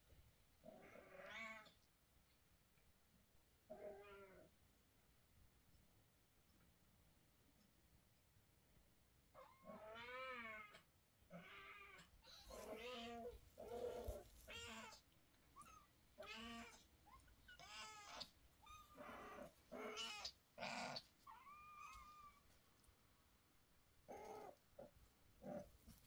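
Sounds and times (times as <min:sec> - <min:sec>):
cat meowing: 0:09.4 - 0:22.4.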